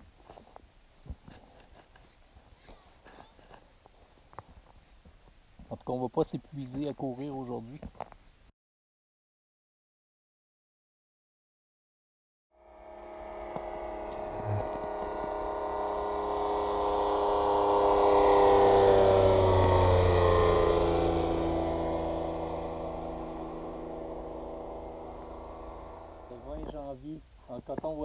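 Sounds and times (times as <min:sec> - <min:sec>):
propeller aircraft flying past: 0:12.6 - 0:26.9.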